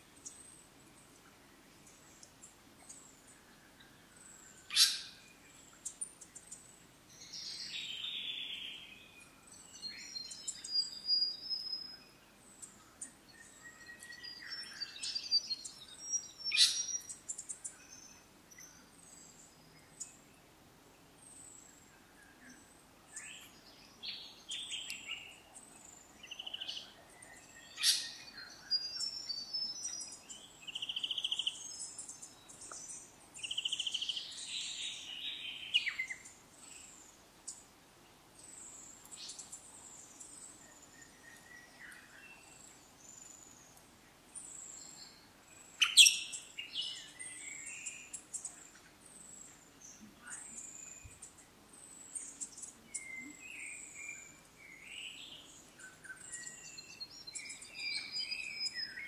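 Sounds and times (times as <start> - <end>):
birds chirping and singing: 1.8 - 20.3, 22.4 - 37.6, 44.4 - 59.0
sharp loud bird calls: 4.6 - 5.2, 16.2 - 17.2, 27.7 - 28.3, 45.8 - 48.2.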